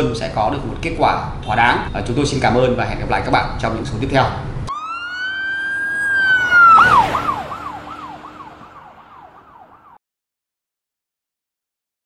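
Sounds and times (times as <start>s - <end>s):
repeating falling tone: 4.7s - 10.0s.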